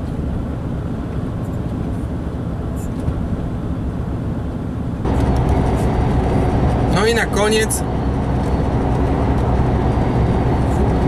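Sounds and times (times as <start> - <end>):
lorry engine and road rumble: 0.0 - 11.0.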